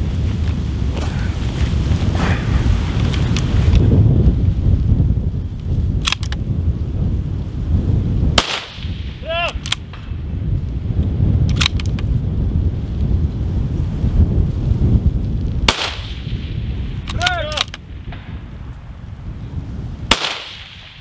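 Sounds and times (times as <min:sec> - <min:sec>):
wind buffeting microphone: 0:00.0 - 0:21.0
rifle shot: 0:08.4 - 0:10.1, 0:15.7 - 0:18.4, 0:20.1 - 0:21.0.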